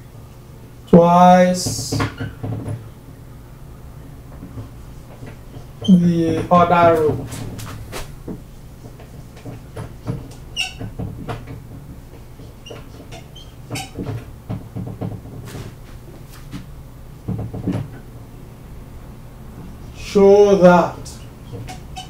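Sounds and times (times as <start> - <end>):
marker squeaking on whiteboard: 5.5 - 8.1, 10.3 - 11.0, 12.4 - 14.2, 21.1 - 22.0.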